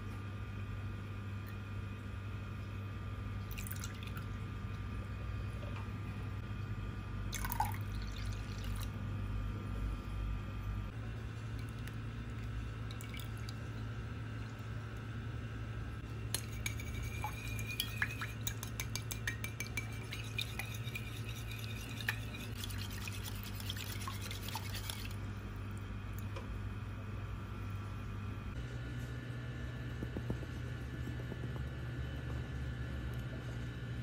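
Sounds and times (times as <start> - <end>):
steady low hum: 0.0 - 34.0
whisk clinking against bowl: 16.3 - 25.1
liquid sloshing: 16.4 - 25.3.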